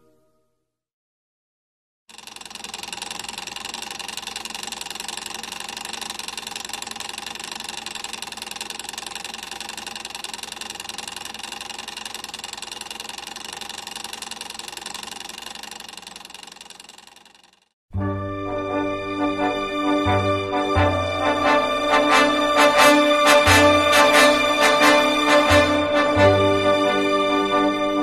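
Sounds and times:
machine running with fast pulse: 0:02.1 - 0:17.8, 0:21.2 - 0:28.0.

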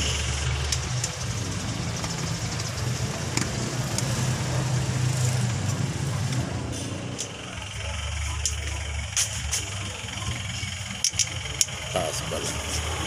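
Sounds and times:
engine idling hum: 0:00.0 - 0:13.0
street traffic: 0:00.0 - 0:13.0.

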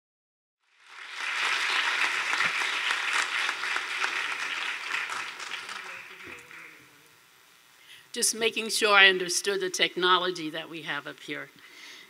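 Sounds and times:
audience applauding: 0:00.7 - 0:06.9.

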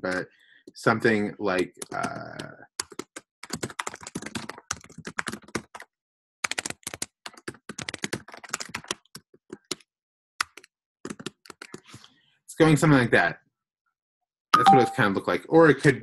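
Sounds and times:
rapid keyboard typing: 0:00.0 - 0:00.2, 0:01.6 - 0:11.9.

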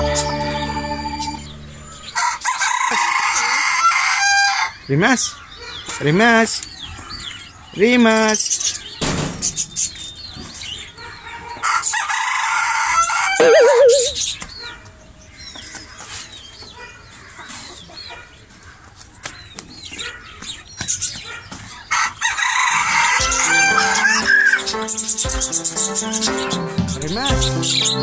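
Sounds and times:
rooster crowing: 0:01.0 - 0:04.8, 0:11.6 - 0:14.2, 0:21.9 - 0:24.6
small birds chirping: 0:04.5 - 0:12.0, 0:13.4 - 0:28.0.

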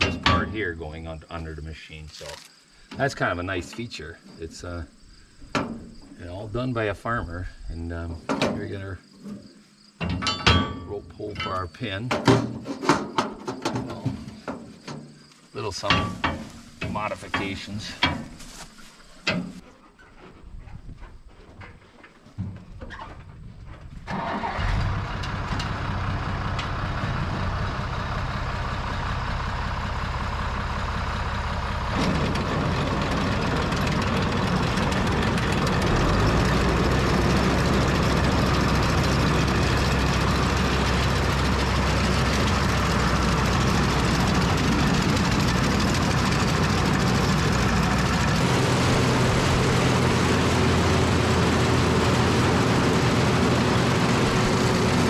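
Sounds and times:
corn picker mechanical clatter: 0:00.0 - 0:01.0, 0:15.6 - 0:18.7, 0:24.1 - 0:55.0
tractor engine running: 0:00.0 - 0:08.9, 0:10.0 - 0:19.6, 0:22.7 - 0:55.0.

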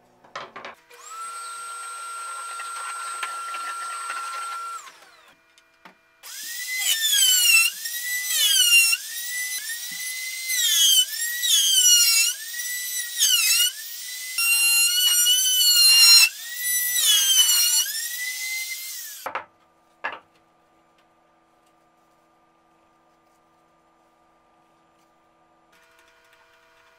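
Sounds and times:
router whining while cutting wood: 0:00.8 - 0:05.4, 0:06.2 - 0:19.3.

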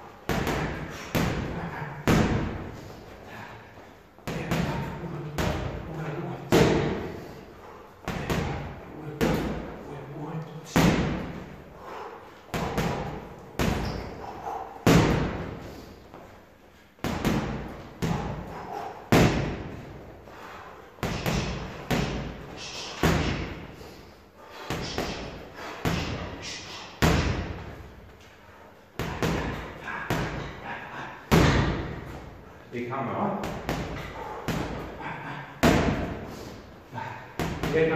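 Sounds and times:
boxing gloves striking heavy bag: 0:12.5 - 0:15.6, 0:17.0 - 0:20.0, 0:21.0 - 0:23.7, 0:24.6 - 0:27.7, 0:31.3 - 0:32.1, 0:33.4 - 0:36.3.

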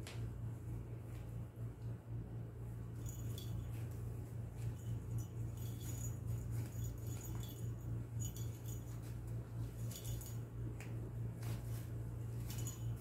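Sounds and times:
steady low hum: 0:00.0 - 0:13.0
kittens scratching and rustling: 0:02.9 - 0:13.0
faint clinks: 0:03.0 - 0:10.6, 0:12.3 - 0:13.0.

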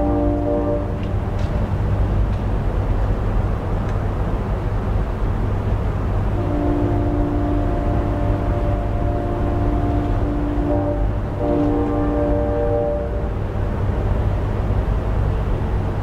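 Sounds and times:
locomotive horn chord: 0:00.0 - 0:01.2, 0:06.4 - 0:13.8.

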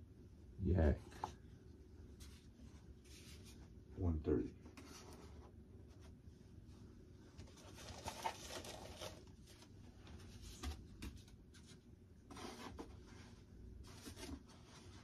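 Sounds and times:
foam parts rustling and scraping: 0:02.1 - 0:03.7, 0:07.3 - 0:15.0.

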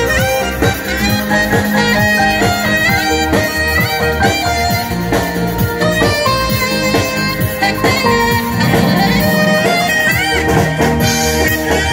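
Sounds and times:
alto saxophone melody: 0:06.1 - 0:11.9
bass line: 0:08.0 - 0:10.8
drum kit: 0:08.0 - 0:10.9.

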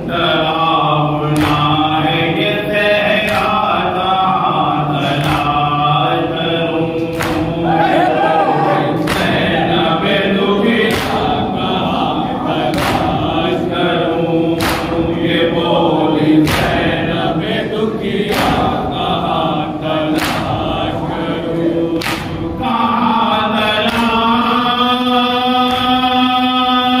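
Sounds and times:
lead reciter chanting: 0:00.0 - 0:27.0
men's voices chanting: 0:00.0 - 0:27.0
unison chest-beating strikes: 0:10.8 - 0:11.6, 0:12.6 - 0:13.6, 0:14.3 - 0:15.4, 0:16.4 - 0:17.1, 0:18.2 - 0:19.4, 0:20.0 - 0:20.9, 0:21.9 - 0:22.6.

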